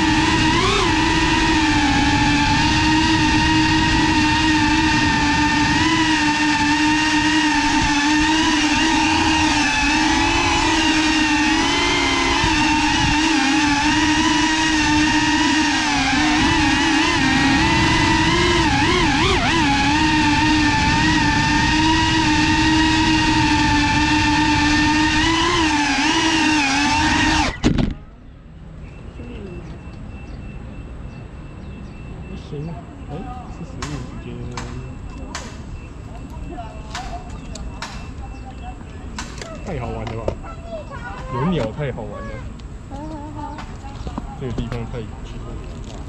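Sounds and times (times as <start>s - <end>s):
rush of prop wash: 0.0s - 27.6s
drone motors whining: 0.0s - 28.2s, 28.8s - 46.0s
drone clattering on pavement: 33.7s - 41.9s, 42.5s - 46.0s.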